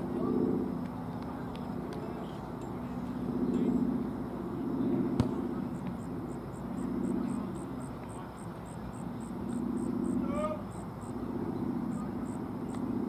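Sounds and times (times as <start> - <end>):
high insect chirp: 5.6 - 13.0.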